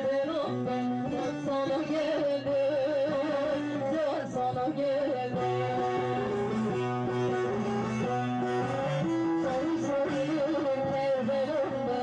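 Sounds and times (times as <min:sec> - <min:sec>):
woman singing: 0:00.0 - 0:06.8, 0:09.4 - 0:12.0
long-necked lute melody: 0:00.0 - 0:12.0.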